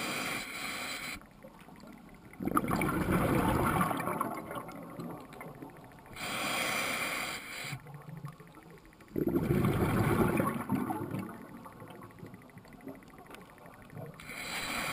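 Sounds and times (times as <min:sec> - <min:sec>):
hissing regulator inhale: 0:00.0 - 0:01.2, 0:06.1 - 0:07.8, 0:14.2 - 0:14.9.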